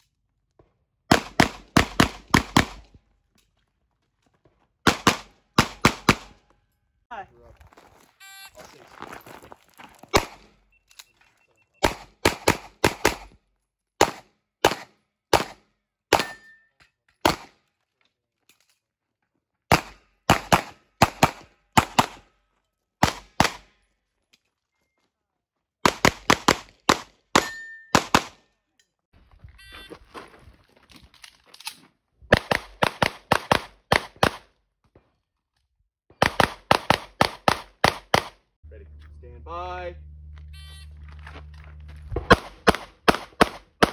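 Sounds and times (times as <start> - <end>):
pistol firing rapid shots: 1.1 - 2.8, 4.9 - 6.3, 11.8 - 13.3, 14.0 - 16.4, 19.7 - 22.2, 23.0 - 23.7, 25.8 - 28.4, 32.3 - 34.4, 36.2 - 38.4, 42.3 - 43.9.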